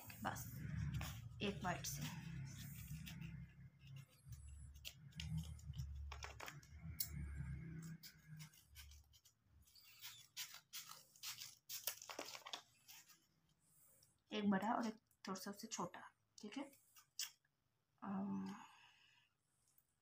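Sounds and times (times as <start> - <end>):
low rumble: 0.0 - 5.8
paper rustling and scratching: 0.0 - 13.6.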